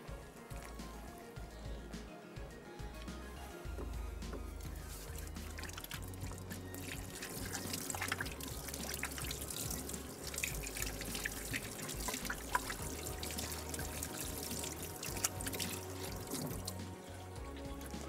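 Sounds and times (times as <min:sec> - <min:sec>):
food deep-frying in oil: 0:04.6 - 0:18.0.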